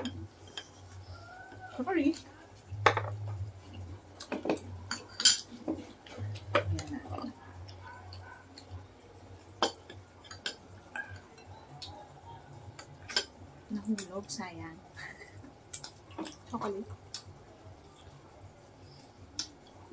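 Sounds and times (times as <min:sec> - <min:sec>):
spoon and plates clinking: 0:04.2 - 0:05.8, 0:09.6 - 0:11.6, 0:13.0 - 0:13.4.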